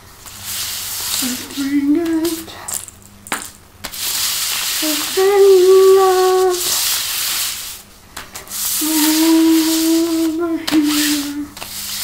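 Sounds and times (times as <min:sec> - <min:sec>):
cards swishing on tile floor: 0:00.2 - 0:12.0
person humming: 0:01.2 - 0:02.7, 0:04.8 - 0:06.8, 0:08.7 - 0:11.6.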